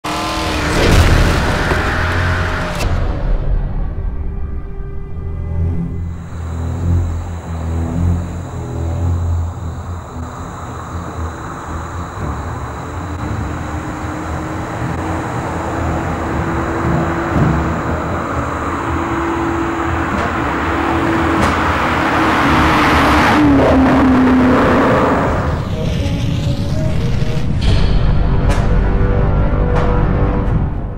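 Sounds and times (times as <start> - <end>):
car passing by: 6.0 - 25.7.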